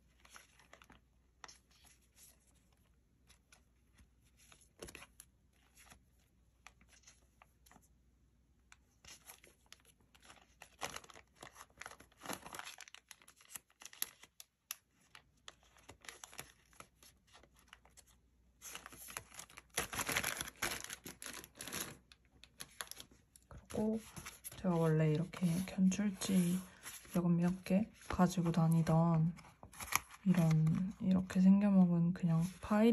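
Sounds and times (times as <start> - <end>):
paper sheets rustling: 15.0 - 31.0
plastic bag crinkling: 18.7 - 28.7.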